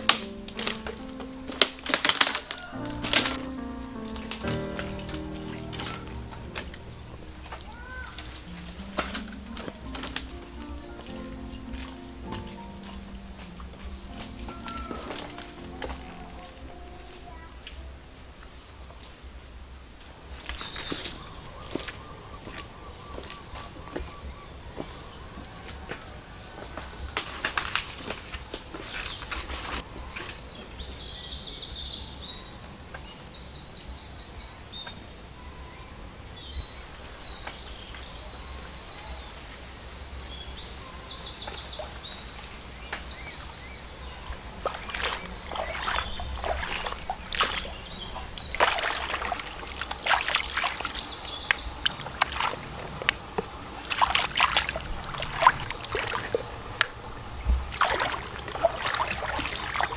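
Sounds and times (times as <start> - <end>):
birds trilling: 2.0 - 17.5, 20.2 - 59.9
hands splashing in shallow water: 44.3 - 59.9.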